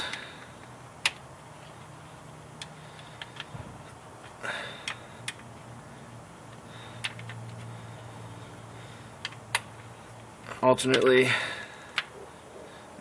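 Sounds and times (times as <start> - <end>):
hand tool clicking on bolts: 10.8 - 11.2.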